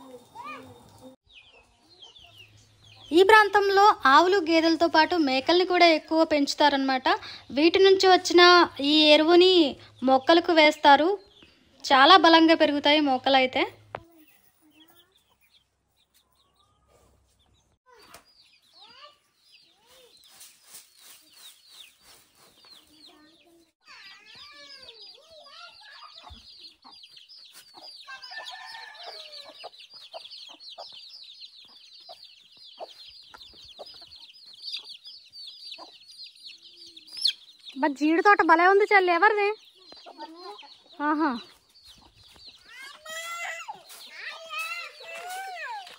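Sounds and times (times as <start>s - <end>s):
chickens clucking: 24.4s - 37.8s, 39.6s - 45.9s.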